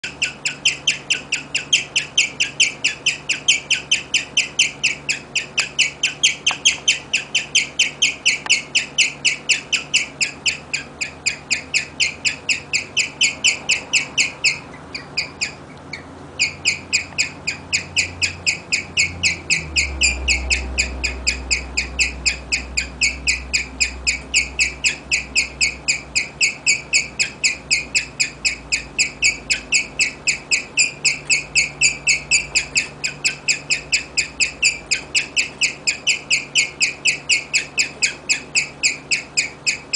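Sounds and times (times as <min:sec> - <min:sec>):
guinea pig chirping: 0:00.0 - 0:39.9.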